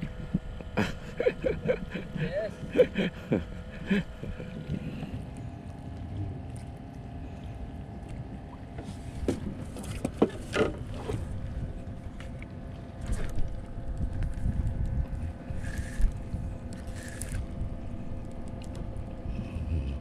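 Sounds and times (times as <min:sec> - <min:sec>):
rumbling water: 0:00.0 - 0:20.0
wind noise: 0:13.0 - 0:19.5.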